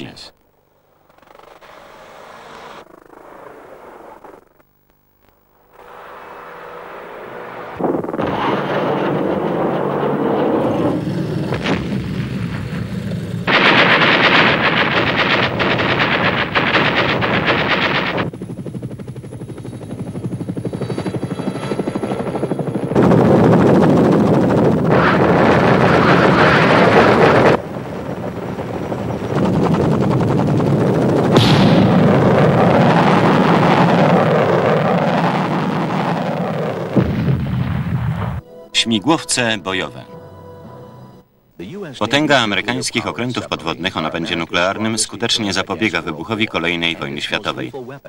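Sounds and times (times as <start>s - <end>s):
helicopter rotors chopping: 5.8s - 37.2s.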